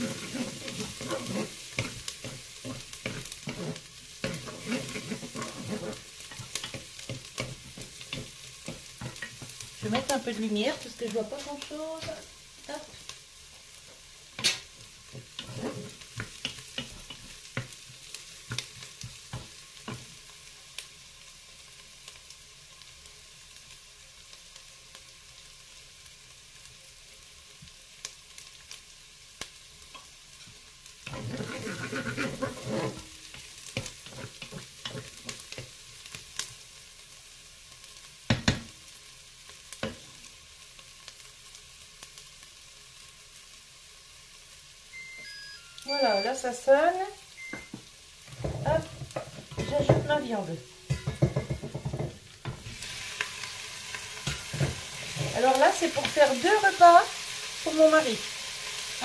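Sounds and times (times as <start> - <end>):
onions sizzling in butter: 0.0 - 59.0
wooden spatula knocking pot: 48.4 - 50.2, 50.9 - 52.6.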